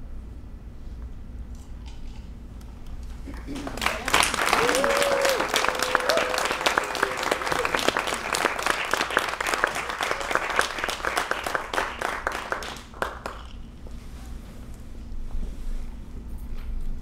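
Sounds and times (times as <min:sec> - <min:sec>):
audience applauding: 0:03.2 - 0:13.6.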